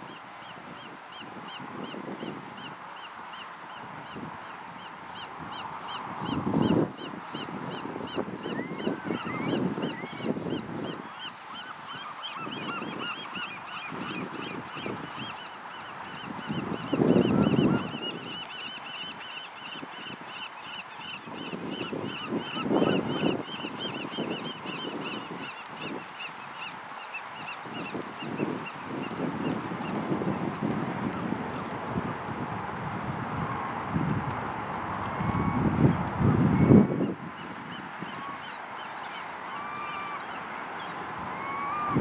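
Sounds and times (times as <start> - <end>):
gulls calling: 5.1 - 29.6, 37.7 - 42.0.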